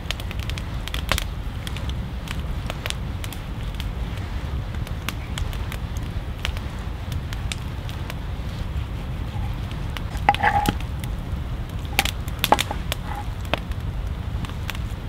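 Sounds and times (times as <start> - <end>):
campfire crackling and popping: 0.0 - 15.0
steady low rumble: 0.0 - 15.0
knife chopping on wooden board: 12.5 - 13.2.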